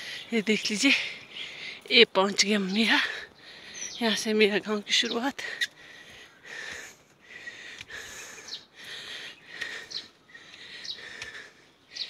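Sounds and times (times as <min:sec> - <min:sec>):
bird chirps: 0:02.4 - 0:06.5, 0:08.2 - 0:11.2
person breathing hard: 0:03.0 - 0:03.9, 0:05.4 - 0:12.0.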